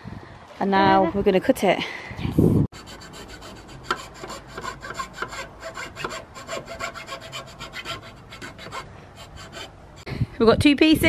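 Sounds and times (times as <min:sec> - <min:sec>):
hand saw cutting wood: 0:02.8 - 0:09.8.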